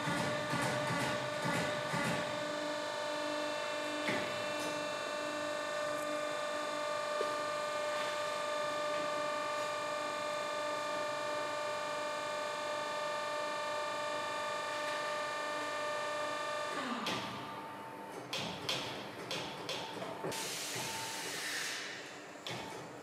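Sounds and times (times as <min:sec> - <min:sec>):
air hiss: 0:20.4 - 0:22.2.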